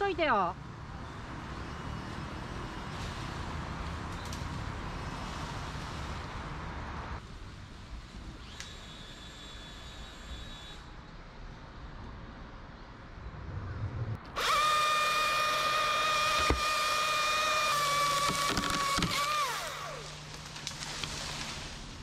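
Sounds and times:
chainsaw cutting through a limb: 14.4 - 21.6.

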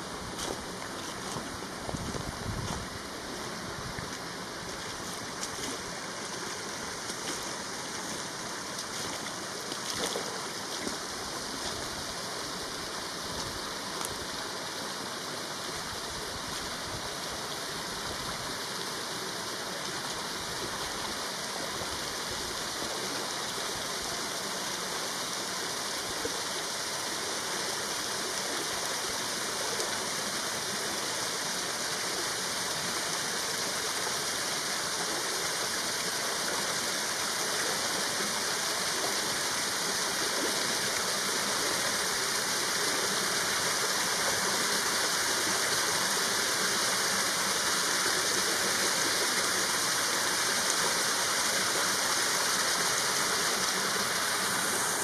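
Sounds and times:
waterfall splashing into pool: 16.7 - 55.0.

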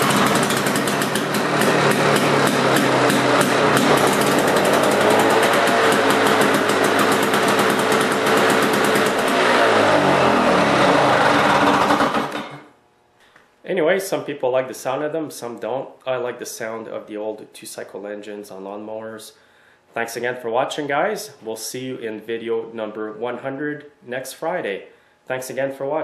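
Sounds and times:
lawnmower two-stroke engine running: 0.0 - 12.7.

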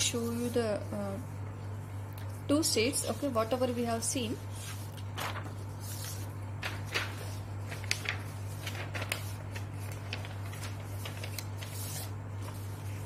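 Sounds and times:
steady low hum: 0.0 - 13.0
paper sheets rustling: 2.6 - 13.0.

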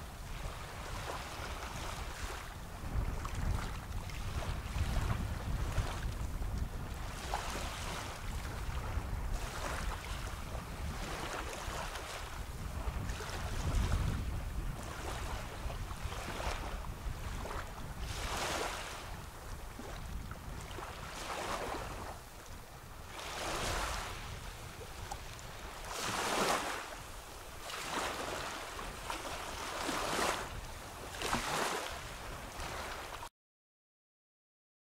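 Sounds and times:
small waves lapping on sand: 0.0 - 33.3.

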